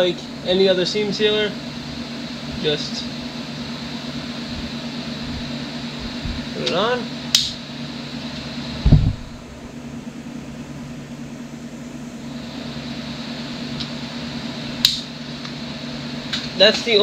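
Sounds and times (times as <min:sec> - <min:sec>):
low mechanical fan hum: 0:00.0 - 0:17.0
dull thump: 0:05.3 - 0:06.5, 0:08.8 - 0:09.6.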